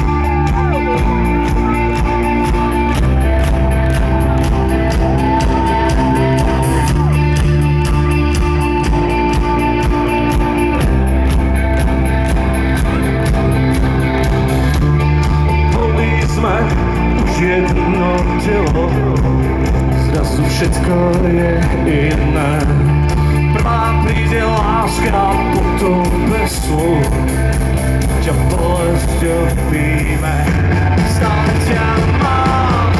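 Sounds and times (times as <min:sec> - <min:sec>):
bass guitar: 0:00.0 - 0:32.9
drums: 0:00.0 - 0:32.9
electric guitars: 0:00.0 - 0:32.9
wavering lead guitar melody: 0:00.0 - 0:32.9.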